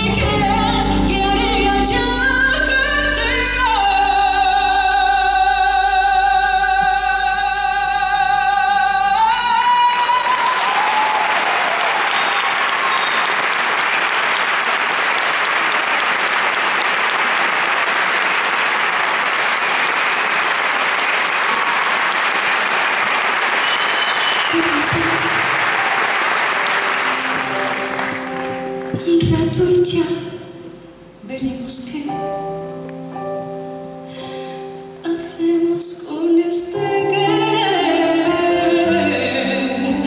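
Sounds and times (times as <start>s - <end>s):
woman singing with vibrato: 0.0s - 11.2s, 24.5s - 25.6s, 35.0s - 40.0s
audience applauding: 9.8s - 29.0s
band playing: 11.8s - 31.0s.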